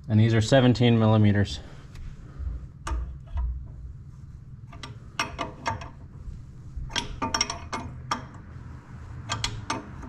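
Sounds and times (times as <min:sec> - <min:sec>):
wrench clicking against metal: 0:09.2 - 0:10.0.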